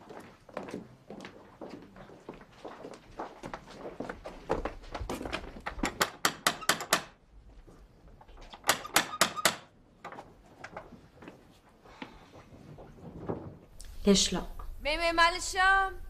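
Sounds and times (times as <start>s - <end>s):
footsteps on stone: 0.0s - 5.9s, 10.0s - 13.1s.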